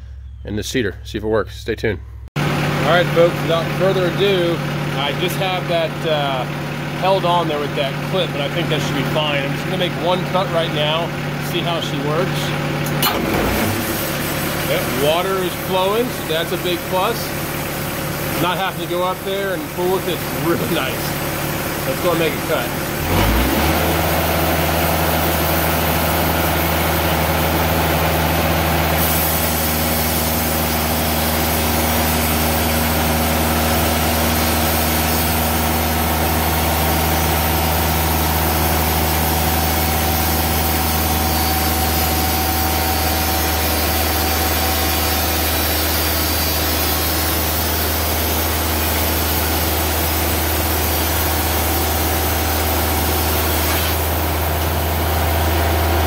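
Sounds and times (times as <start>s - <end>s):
band sawmill engine humming: 0.0s - 56.0s
saw blade cutting log: 18.3s - 21.2s, 21.8s - 24.5s, 38.6s - 54.9s.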